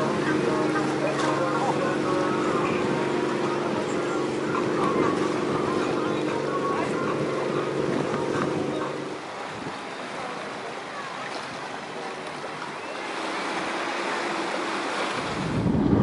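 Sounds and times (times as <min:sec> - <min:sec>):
low engine hum: 0:00.0 - 0:16.0
ocean surf: 0:00.0 - 0:16.0
wind rushing: 0:15.2 - 0:16.0.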